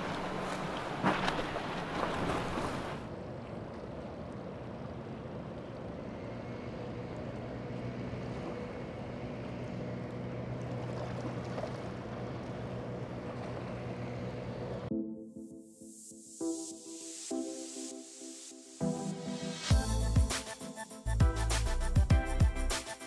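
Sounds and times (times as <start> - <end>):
outboard motor humming: 0.0 - 3.0, 5.8 - 14.9
rush of water and wind: 0.0 - 14.9.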